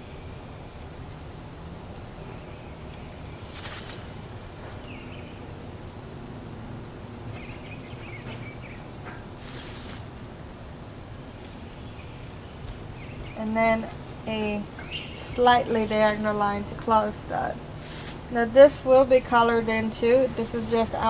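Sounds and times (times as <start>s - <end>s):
short hissing swishes: 3.5s - 4.1s, 9.4s - 10.0s, 17.8s - 18.3s.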